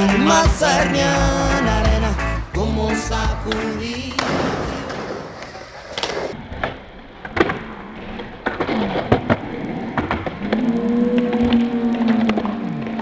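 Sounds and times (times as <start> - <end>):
music: 0.0 - 4.5
skateboard wheels rolling: 3.5 - 13.0.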